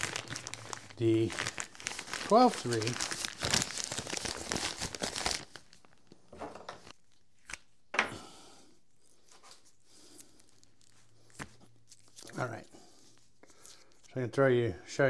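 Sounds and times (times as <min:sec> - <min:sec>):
plastic bag crinkling and tearing: 0:00.0 - 0:06.1.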